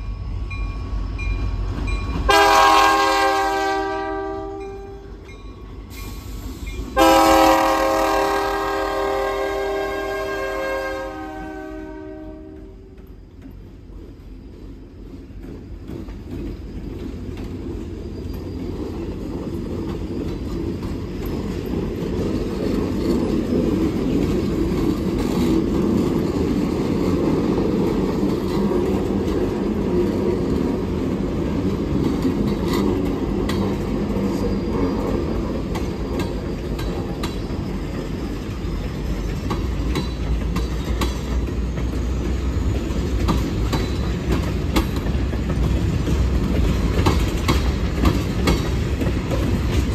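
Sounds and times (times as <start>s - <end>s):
rumble of train wheels on rail: 0.0s - 49.9s
wheels clanking over rail joints: 12.4s - 49.9s
high wheel squeal: 33.0s - 39.9s.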